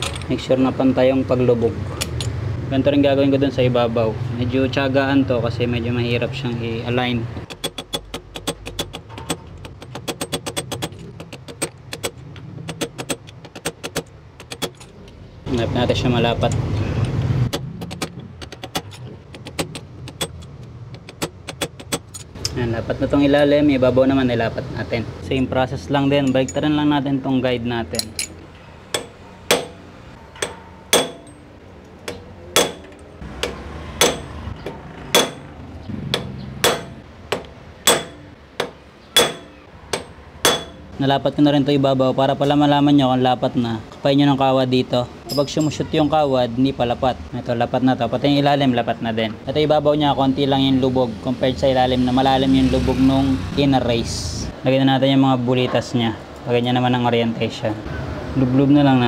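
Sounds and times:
hammer tapping on metal tube: 29.0s - 29.8s, 30.4s - 31.4s, 32.1s - 35.5s, 36.2s - 40.9s.

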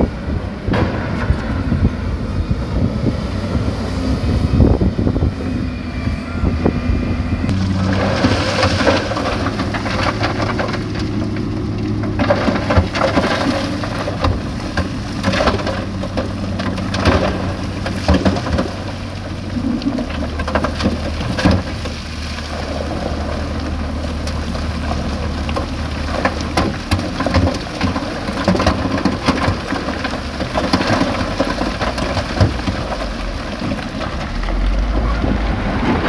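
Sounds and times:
diesel machinery droning: 0.0s - 36.0s
stones crashing and clattering: 7.5s - 35.1s.

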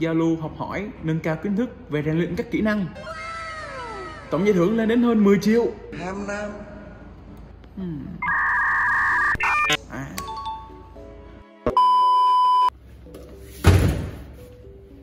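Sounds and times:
background music: 0.0s - 7.4s, 9.0s - 15.0s
held beep: 11.7s - 12.7s.

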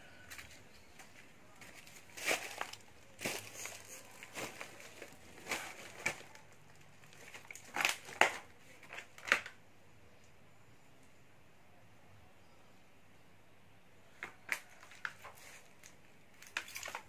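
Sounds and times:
footsteps crunching on debris: 0.3s - 6.4s.

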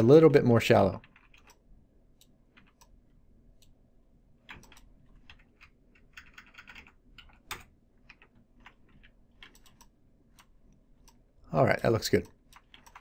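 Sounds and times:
keyboard keys clicking: 4.5s - 11.2s, 12.1s - 13.0s.

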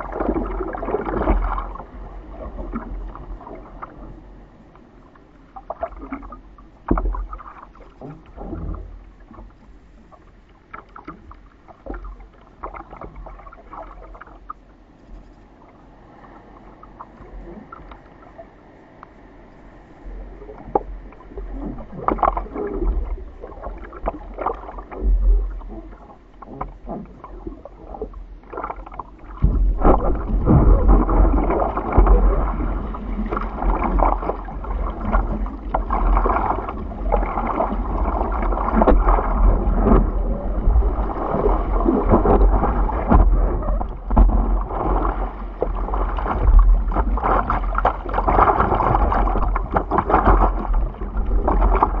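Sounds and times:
water splashing against surfboard: 0.0s - 4.3s, 5.6s - 14.6s, 20.5s - 52.0s
low rumble: 19.6s - 52.0s.

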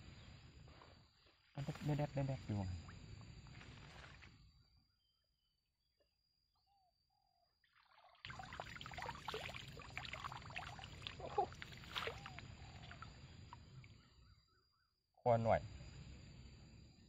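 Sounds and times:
water splashing and pouring: 7.7s - 13.8s
water drops plinking: 8.2s - 13.7s.

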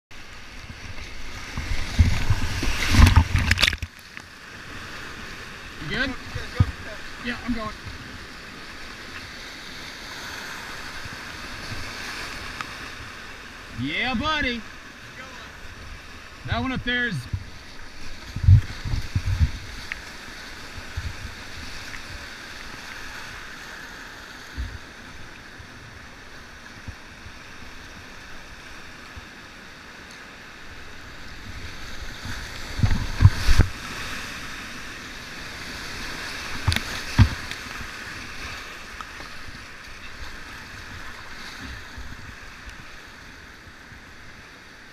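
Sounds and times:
water splashing against boat: 0.2s - 13.7s, 14.6s - 44.4s
whitewater rushing: 4.6s - 25.3s.

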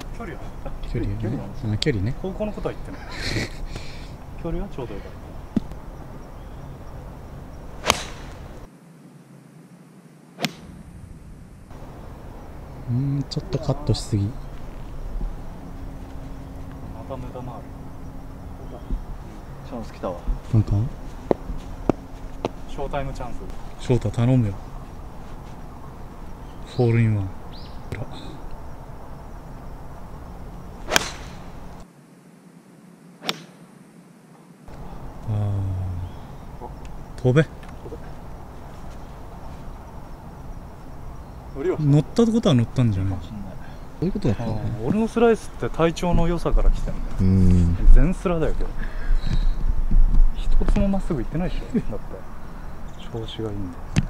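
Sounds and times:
golf club striking ball: 7.8s - 8.7s, 30.8s - 31.8s.

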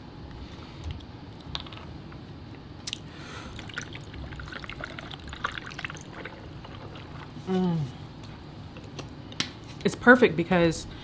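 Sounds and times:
tea pouring over ice: 3.6s - 7.2s.

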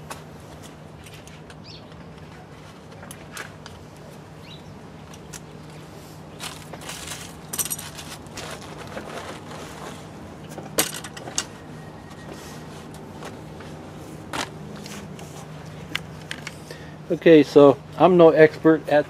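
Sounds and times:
small metal parts clinking: 6.4s - 8.2s.

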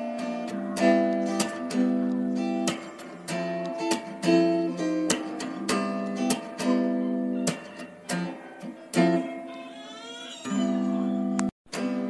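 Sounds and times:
guitar strumming chords: 0.0s - 12.0s.

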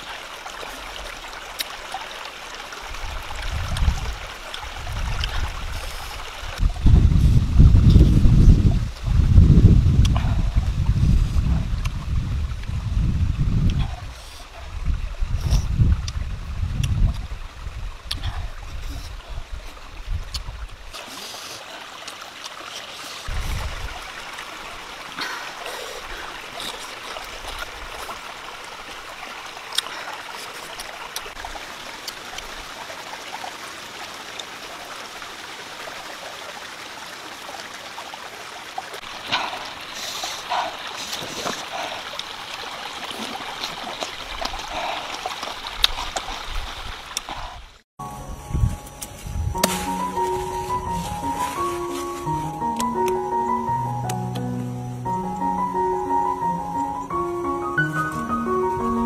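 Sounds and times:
small water splashes: 0.0s - 6.8s, 16.8s - 47.8s
stream trickling over rocks: 0.0s - 47.8s, 48.6s - 59.0s.

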